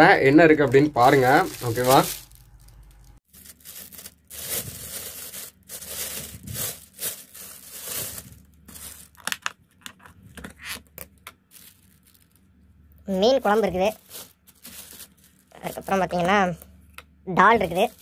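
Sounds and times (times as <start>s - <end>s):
plastic bag rustling: 0.5s - 9.5s, 11.4s - 12.6s, 13.4s - 16.6s, 17.6s - 18.0s.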